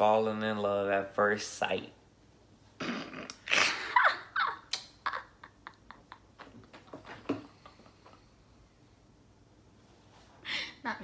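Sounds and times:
woman laughing: 3.5s - 6.8s.

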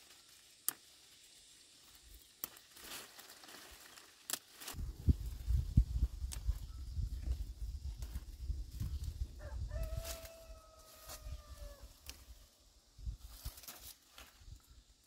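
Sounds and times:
rustling of bean vines: 0.0s - 15.0s
bean pods snapping: 0.6s - 1.0s, 2.2s - 4.8s
rooster crowing: 9.4s - 12.0s.

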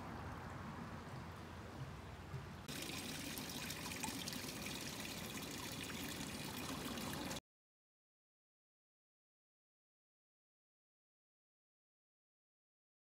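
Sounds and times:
creek water rippling: 0.0s - 7.4s.

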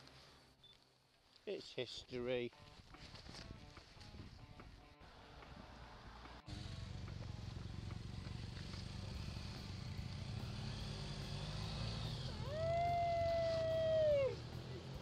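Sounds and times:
motorcycle engine idling: 6.5s - 11.4s.

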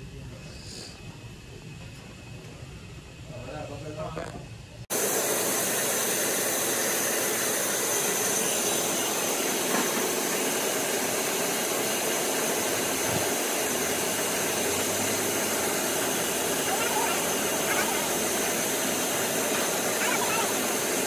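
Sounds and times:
band saw running: 4.9s - 21.0s.

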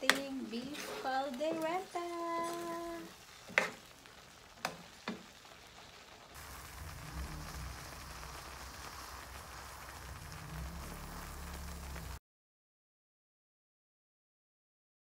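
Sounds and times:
stew sizzling: 0.0s - 12.2s
low hum: 6.4s - 12.2s.

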